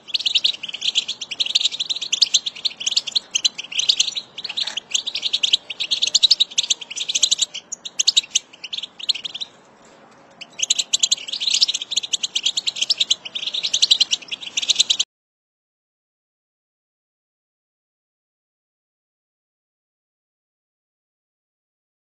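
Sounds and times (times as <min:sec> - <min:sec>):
goldfinch twittering: 0:00.0 - 0:09.5, 0:10.4 - 0:15.0.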